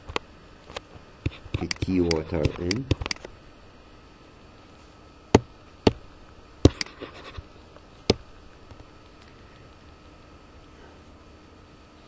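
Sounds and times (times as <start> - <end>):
mouse clicks: 1.3 - 3.2.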